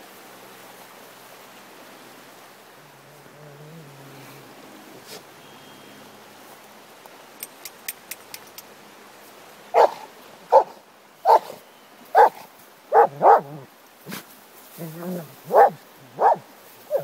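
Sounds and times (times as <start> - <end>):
faint ticks: 7.0 - 8.8
dog barking: 9.7 - 11.6, 12.2 - 13.6, 15.4 - 17.0.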